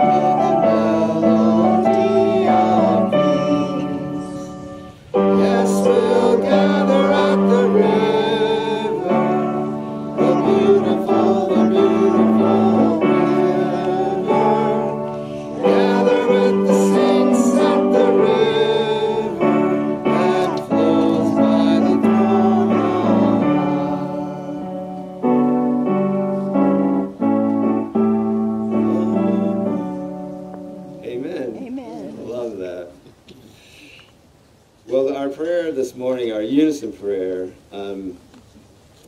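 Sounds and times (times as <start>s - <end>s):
person singing: 0.0s - 25.2s, 28.6s - 30.2s
keyboard accompaniment: 0.0s - 32.0s.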